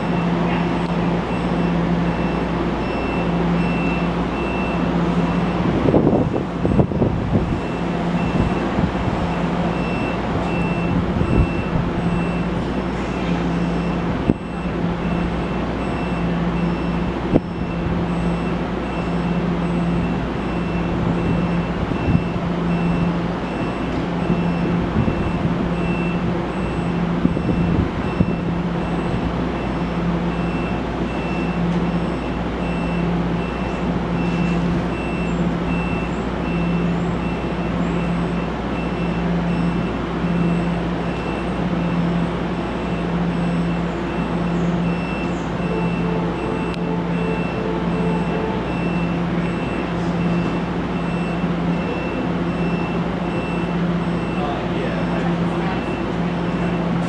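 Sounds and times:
electric train hum: 0.0s - 57.0s
pulsing beep tone: 42.8s - 54.5s.

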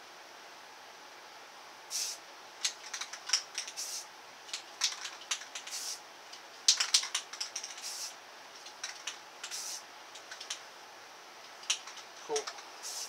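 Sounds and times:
spray can hissing: 1.9s - 2.2s, 3.4s - 4.1s, 5.2s - 6.0s, 6.9s - 8.2s, 8.9s - 9.8s, 12.8s - 13.0s
spray can clicks: 8.9s - 9.8s.

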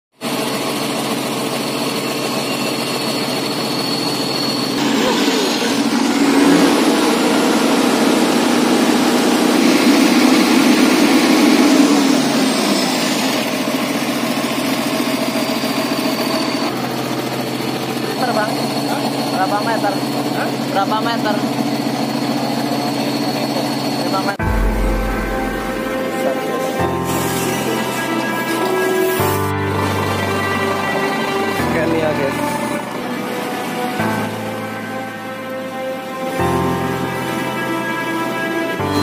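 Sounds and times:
truck diesel engine revving: 4.8s - 18.4s.

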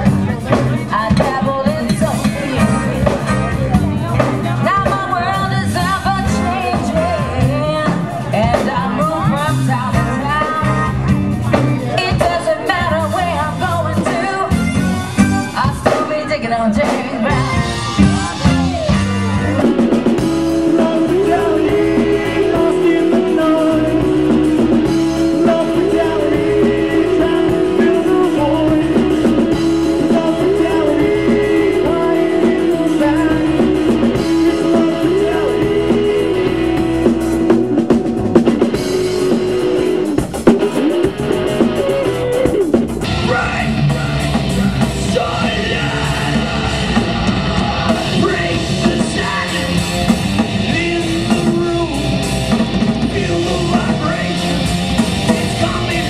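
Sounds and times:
live rock band playing: 0.0s - 56.0s.

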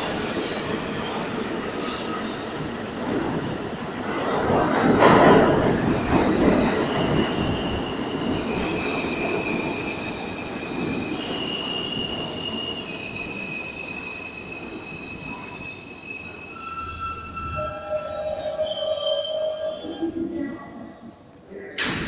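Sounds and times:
subway train wheels rumbling: 0.0s - 22.0s.

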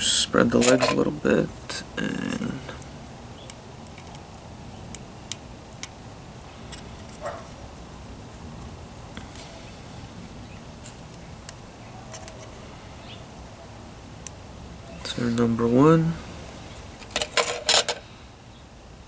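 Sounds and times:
low steady background noise: 0.0s - 19.0s.

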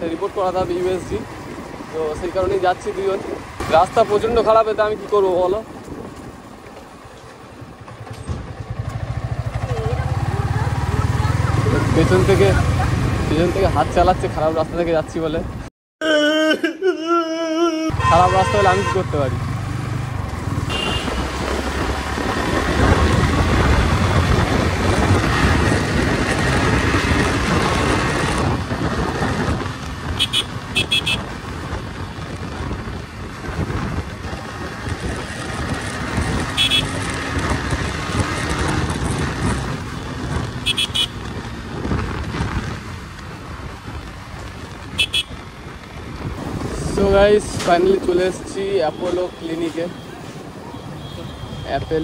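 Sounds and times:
motorcycle engine: 0.0s - 14.6s, 17.9s - 48.2s
vehicle horn toots: 17.9s - 19.1s, 20.7s - 21.4s, 30.2s - 31.3s, 36.5s - 37.0s, 40.6s - 41.2s, 45.0s - 45.4s
wind rushing over microphone: 19.4s - 50.7s.

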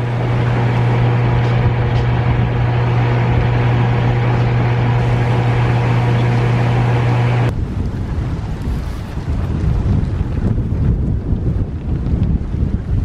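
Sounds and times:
diesel engine droning: 0.0s - 7.5s
rough noise haze: 0.0s - 7.5s.

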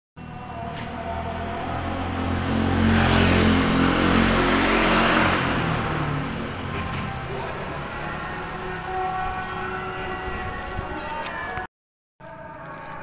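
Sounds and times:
vehicle driving past: 0.2s - 10.4s.

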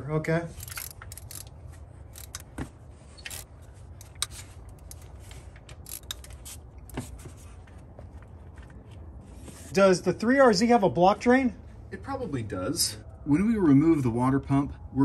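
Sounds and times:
socket ratchet clicking: 0.6s - 1.6s, 2.2s - 2.5s, 3.2s - 5.1s, 5.8s - 6.6s.

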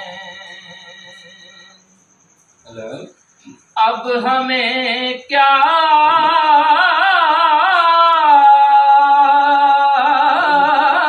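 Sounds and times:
person singing unaccompanied: 0.0s - 1.4s, 3.8s - 11.0s.

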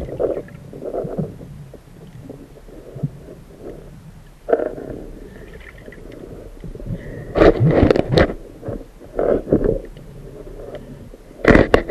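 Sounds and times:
muffled underwater rumbling: 0.0s - 11.9s.

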